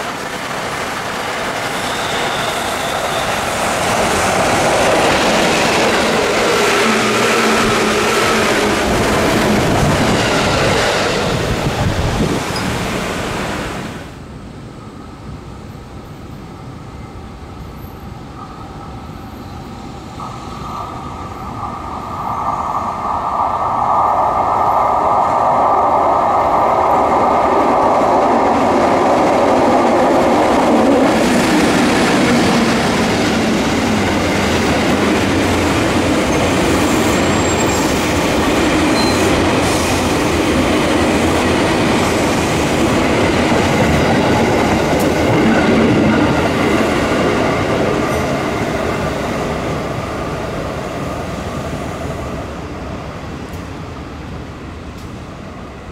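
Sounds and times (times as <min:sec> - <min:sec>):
train wheels clattering on rails: 0:00.0 - 0:12.9, 0:26.7 - 0:50.0.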